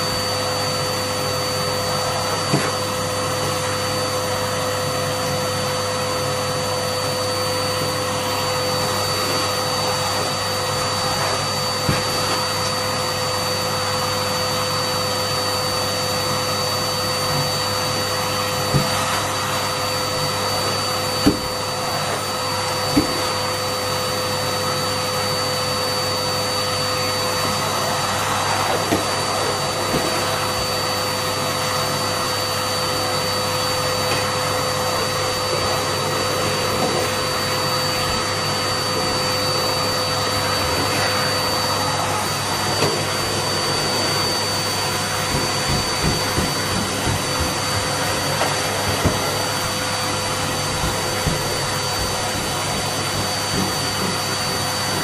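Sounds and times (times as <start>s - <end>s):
vacuum cleaner motor whine: 0.0s - 55.0s.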